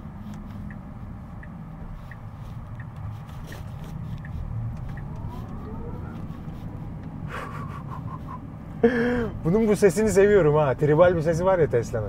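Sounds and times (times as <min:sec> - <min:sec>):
low road rumble: 0:00.0 - 0:12.0
turn signal ticking: 0:00.0 - 0:12.0.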